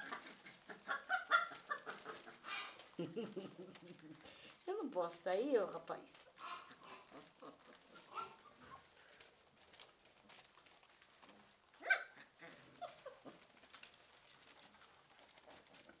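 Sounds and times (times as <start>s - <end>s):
puppy yipping: 0.0s - 2.8s, 6.4s - 8.9s, 11.8s - 13.4s
paws rustling on newspaper: 0.0s - 16.0s.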